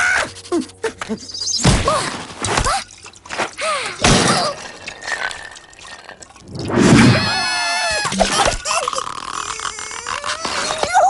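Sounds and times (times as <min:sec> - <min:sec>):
whooshes: 0:06.4 - 0:07.2
cartoon crashes: 0:06.8 - 0:07.7
squeaky cartoon cries: 0:07.2 - 0:11.0.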